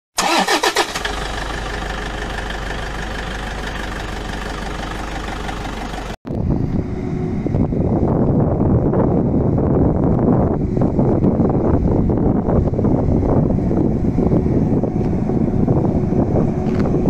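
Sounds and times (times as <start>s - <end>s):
engine-like drone: 0.2s - 17.0s
distant forage harvester rumble: 0.7s - 17.0s
wind buffeting microphone: 6.3s - 17.0s.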